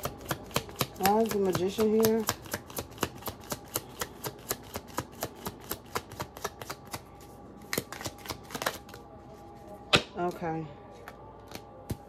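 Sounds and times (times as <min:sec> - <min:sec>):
cards being shuffled: 0:02.0 - 0:09.0.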